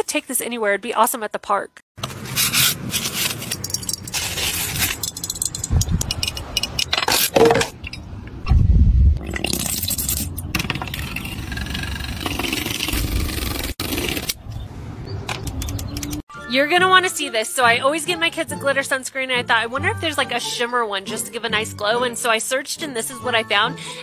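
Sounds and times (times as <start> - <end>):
handling scraping and rubbing: 2.0 - 8.0.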